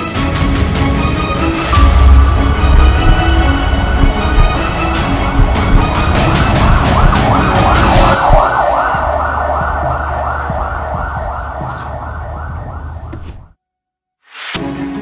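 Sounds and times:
music with a beat: 0:01.7 - 0:13.1
ambulance siren yelp: 0:04.4 - 0:13.3.

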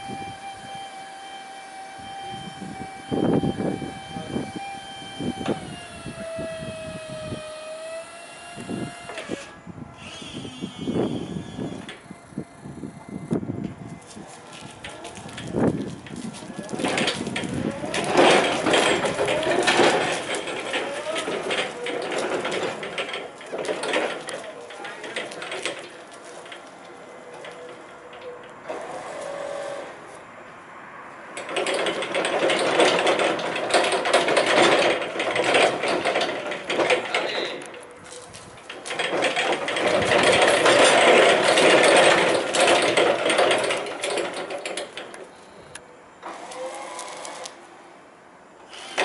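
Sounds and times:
electric truck whirring: 0:00.0 - 0:13.8, 0:17.0 - 0:23.3, 0:26.8 - 0:30.0, 0:39.0 - 0:47.6, 0:48.6 - 0:49.0.

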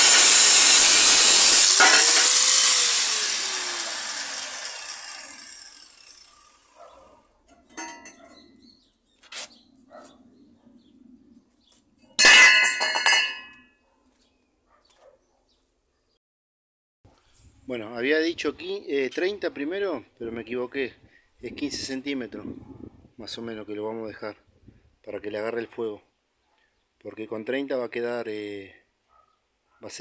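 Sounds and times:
angle grinder cutting steel: 0:00.0 - 0:06.8
steel landing on concrete clang: 0:07.6 - 0:08.3, 0:12.2 - 0:13.6.

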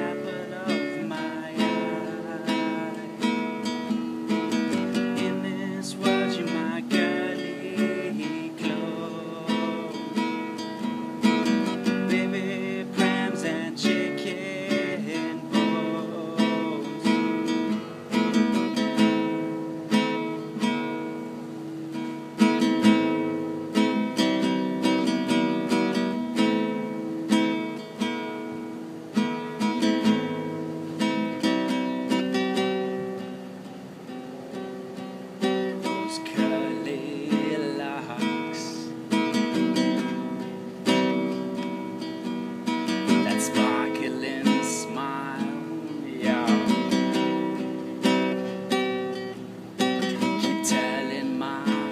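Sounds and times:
person singing: 0:00.0 - 0:20.4, 0:35.4 - 0:40.3, 0:42.9 - 0:51.9
nylon-string guitar strumming: 0:00.0 - 0:51.9.

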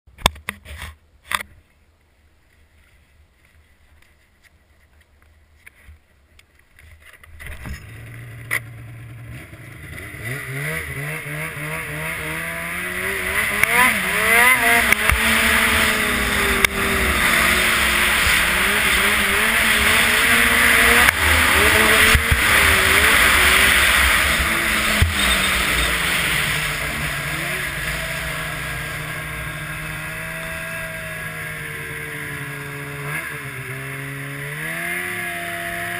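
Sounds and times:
snowmobile engine running: 0:07.6 - 0:35.9.

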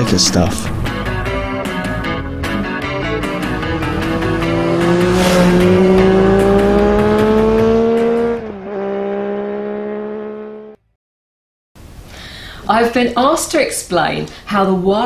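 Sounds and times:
rock music with drums: 0:00.7 - 0:08.2
engine revving: 0:02.4 - 0:10.8.

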